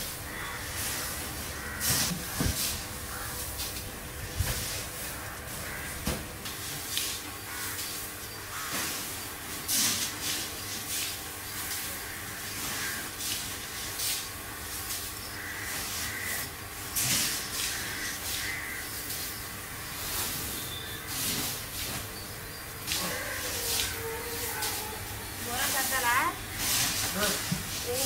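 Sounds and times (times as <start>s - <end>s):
puffed rice sliding through sieve: 26.5s - 28.0s.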